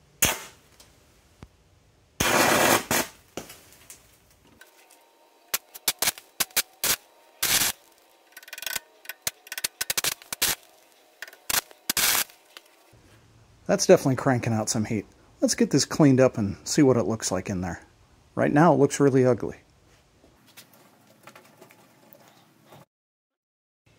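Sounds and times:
welding arc crackling and popping: 2.2s - 4.1s, 5.5s - 12.8s.

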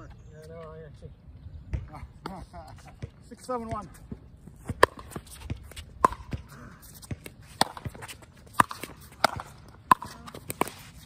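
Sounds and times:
ball bouncing on court: 1.7s - 2.4s, 3.0s - 3.9s, 4.7s - 10.8s
shoes on hard court: 2.8s - 11.0s.

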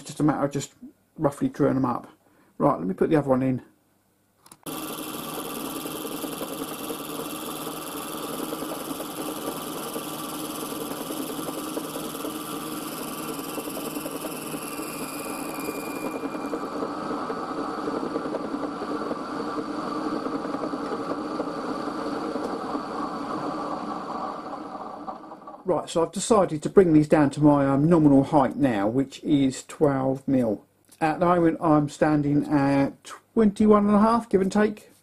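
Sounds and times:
milling machine running: 4.7s - 25.7s
high whine: 4.7s - 26.5s.

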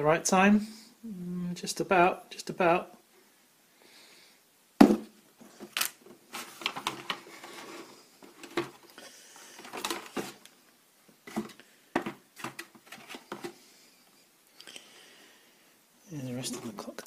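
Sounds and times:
cardboard pieces rustling and scraping: 5.5s - 8.9s, 9.5s - 10.5s, 11.2s - 13.6s.

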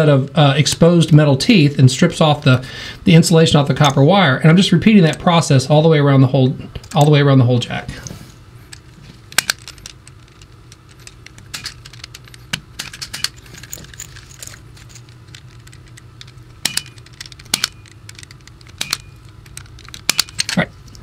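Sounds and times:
punch-down tool clicking: 15.4s - 20.6s.

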